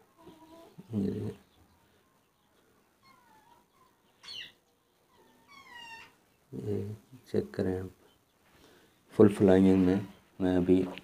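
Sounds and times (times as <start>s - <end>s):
high gliding animal calls: 3.0s - 6.2s.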